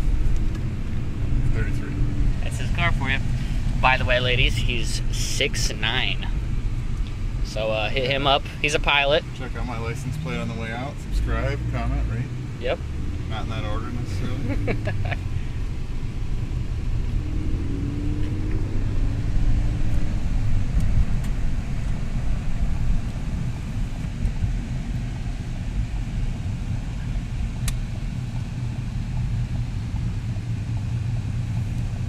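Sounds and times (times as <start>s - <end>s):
car engine and tyre rumble: 0.0s - 32.0s.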